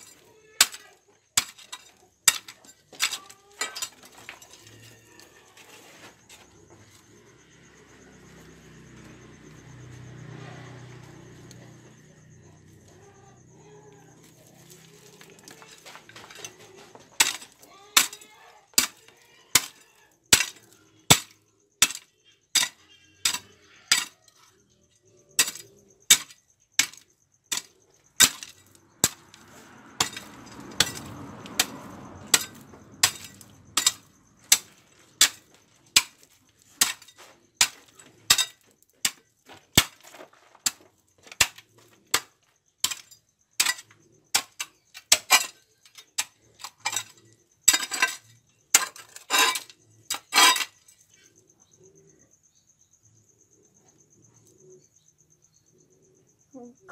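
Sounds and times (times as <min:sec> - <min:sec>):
hoe chopping stony soil: 0:00.0 - 0:04.6, 0:14.4 - 0:24.2, 0:25.4 - 0:50.8.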